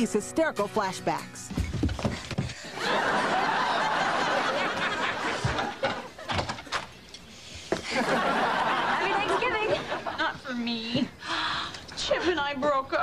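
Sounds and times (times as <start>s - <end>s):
studio audience laughing: 2.6s - 6.8s, 7.8s - 10.4s.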